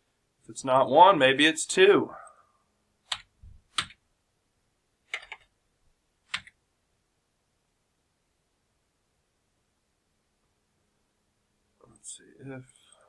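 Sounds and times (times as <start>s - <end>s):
mouse and keyboard clicks: 3.1s - 4.0s, 5.1s - 5.5s, 6.3s - 6.6s.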